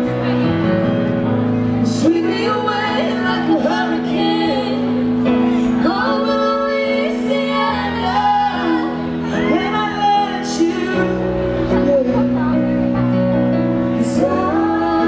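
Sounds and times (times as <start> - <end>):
keyboard chords: 0.0 - 15.0
woman singing: 1.9 - 12.7, 13.9 - 15.0.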